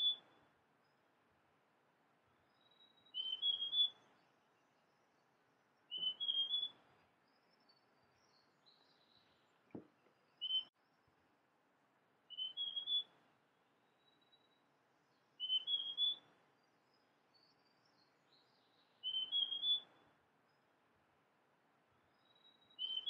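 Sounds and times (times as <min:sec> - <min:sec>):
bird whistling song: 0:00.0 - 0:00.4, 0:02.5 - 0:04.2, 0:05.8 - 0:09.5, 0:10.2 - 0:10.8, 0:12.3 - 0:13.2, 0:14.0 - 0:20.0, 0:22.1 - 0:23.0.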